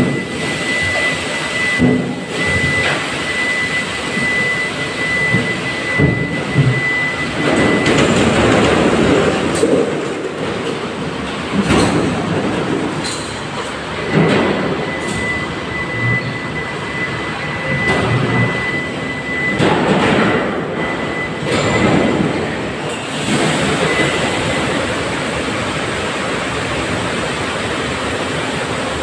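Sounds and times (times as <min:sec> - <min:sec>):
water pouring from pipes: 0:23.0 - 0:28.9.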